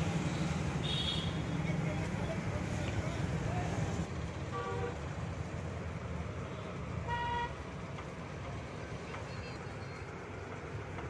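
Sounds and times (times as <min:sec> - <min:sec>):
road traffic rumble: 0:00.0 - 0:11.0
vehicle horn toot: 0:00.8 - 0:01.4, 0:07.0 - 0:07.6.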